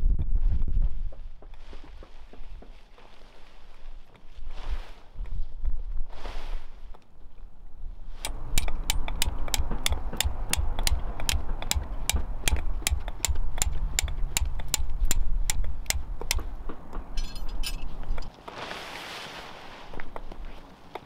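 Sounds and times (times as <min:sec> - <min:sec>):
hammer striking tent peg: 0:08.2 - 0:17.7.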